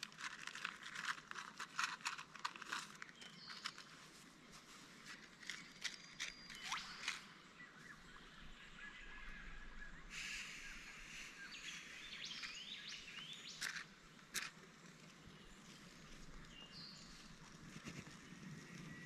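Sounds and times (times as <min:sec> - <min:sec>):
camping gear clicks: 0:00.0 - 0:07.4, 0:12.2 - 0:15.2
birds calling: 0:05.6 - 0:14.3
short rising whistled bird calls: 0:06.2 - 0:13.6.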